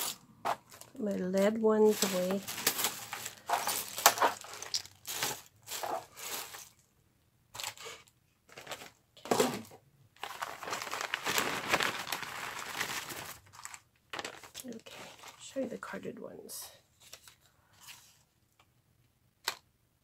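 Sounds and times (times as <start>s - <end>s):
plastic bag crinkling: 0.0s - 6.8s, 8.5s - 15.5s.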